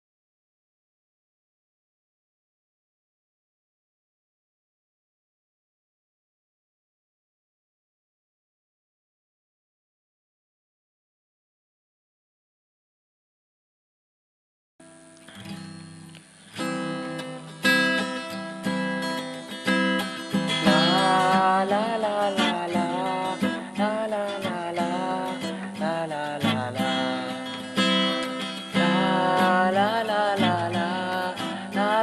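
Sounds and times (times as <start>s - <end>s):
acoustic guitar playing: 14.8s - 32.0s.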